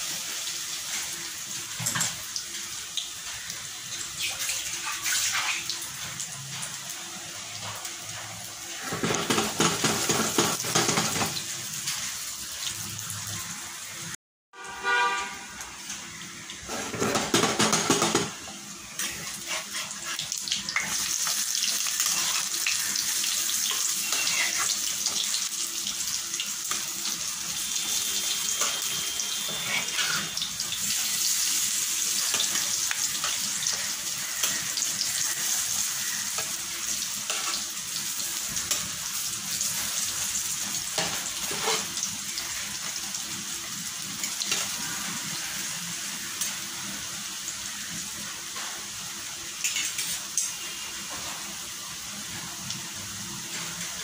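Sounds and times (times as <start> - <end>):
food sizzling in hot oil: 0.0 - 54.0
steel spatula scraping a pan: 19.0 - 21.0, 21.9 - 25.2, 27.8 - 31.5, 37.2 - 37.8, 41.0 - 42.7.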